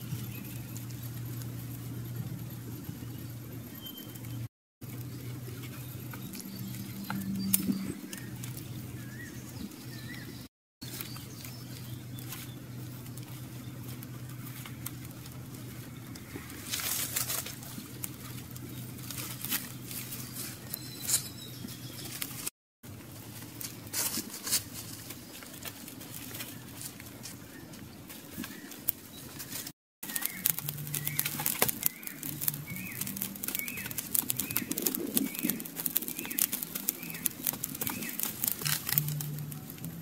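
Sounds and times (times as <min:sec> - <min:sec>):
steady low hum: 0:00.0 - 0:20.8, 0:30.0 - 0:40.0
feathers being plucked: 0:30.0 - 0:40.0.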